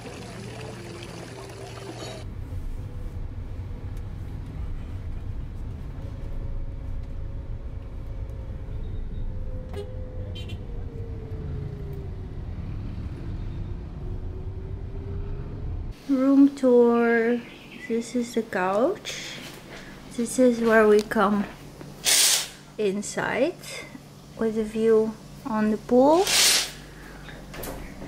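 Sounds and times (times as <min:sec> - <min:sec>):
pool water sloshing: 0:00.0 - 0:02.2
car road and engine rumble: 0:02.2 - 0:16.0.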